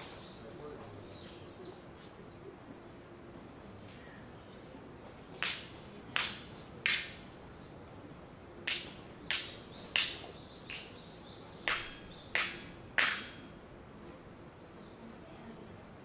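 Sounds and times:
faint outdoor background: 0.0s - 16.0s
sharp snapping clicks: 5.4s - 7.2s, 8.7s - 10.9s, 11.6s - 13.3s.

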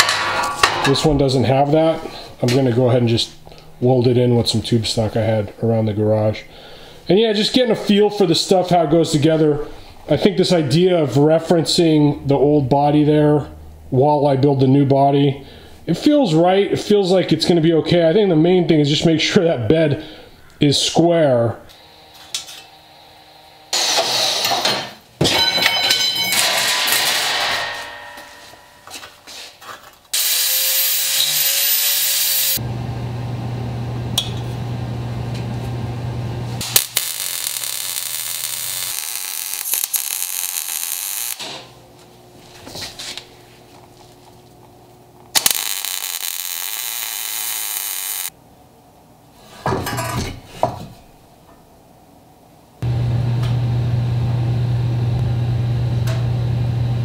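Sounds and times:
power tools working steel: 30.2s - 32.7s, 36.6s - 41.6s, 45.4s - 48.3s.

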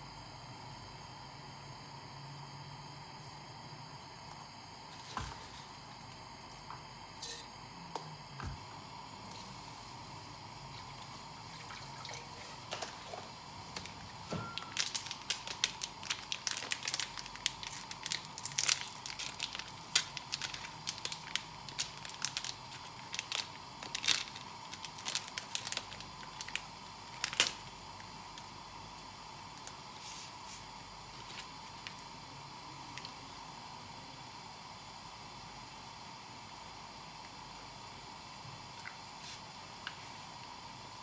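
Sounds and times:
faint steady hum: 0.0s - 41.0s
packaging crinkling: 12.6s - 27.8s.

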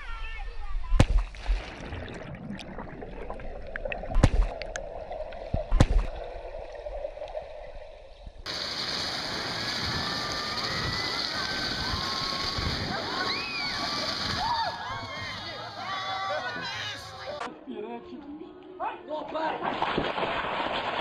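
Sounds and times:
sharp knocks underwater: 0.9s - 7.6s
underwater bubbling and gurgling: 1.1s - 9.6s
steady high hiss: 8.5s - 14.4s.

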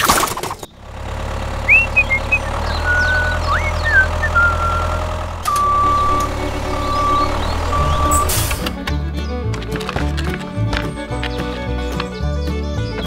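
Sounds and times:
truck engine humming: 0.4s - 13.0s
high chirping whistles: 1.7s - 8.5s
reversing beeper: 1.7s - 8.7s.

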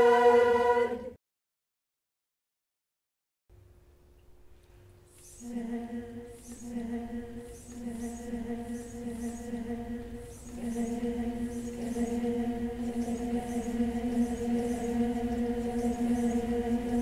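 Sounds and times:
choir singing held notes: 0.0s - 1.2s, 5.4s - 17.0s.

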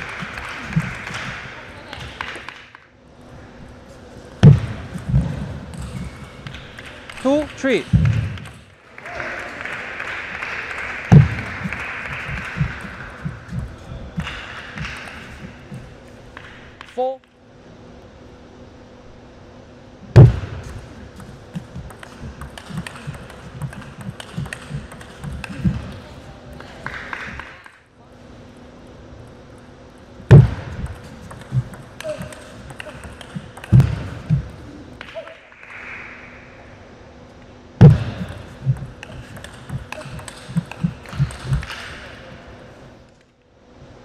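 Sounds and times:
footsteps thudding on court: 11.1s - 15.9s
loud low thump: 20.2s - 20.6s, 37.8s - 38.8s
ping pong ball clicking: 21.2s - 25.8s, 30.5s - 34.1s, 38.3s - 41.9s.

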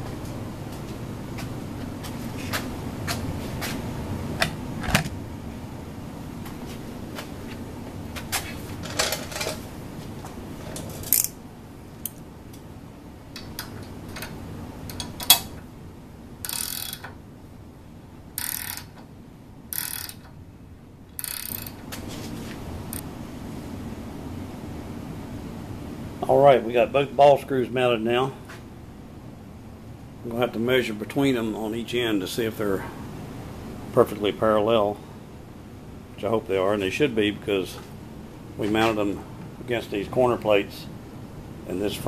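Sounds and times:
ratchet wrench clicking: 16.4s - 17.1s, 18.4s - 19.0s, 19.7s - 20.3s, 21.2s - 21.8s.

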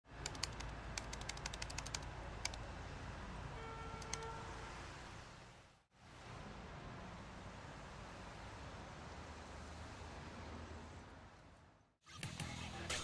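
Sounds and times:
laptop keyboard typing: 0.2s - 2.6s, 4.0s - 4.2s.

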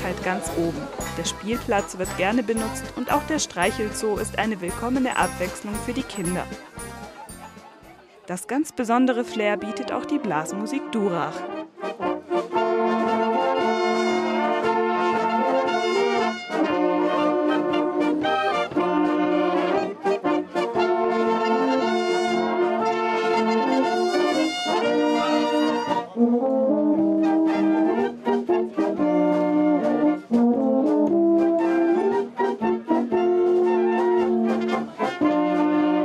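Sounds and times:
wind band playing held chords: 9.7s - 36.0s.

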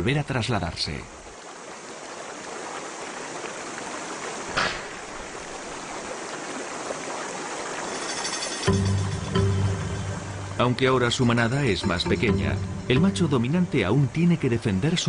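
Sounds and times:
river water rushing: 1.0s - 15.0s
water splash: 2.3s - 9.1s.

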